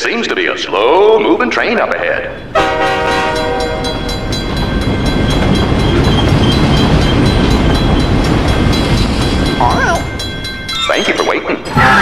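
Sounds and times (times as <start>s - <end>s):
train rumble: 0.0s - 12.0s
wheels clickety-clack on rails: 2.4s - 12.0s
train horn: 2.5s - 4.0s.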